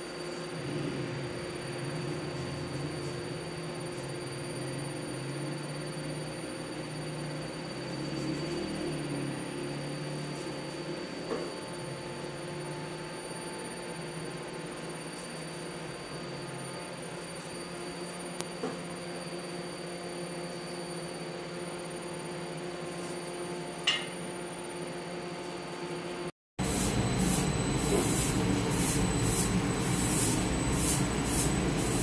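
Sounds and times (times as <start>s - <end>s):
machinery hum: 0.0s - 32.0s
sharp clink: 23.9s - 24.2s.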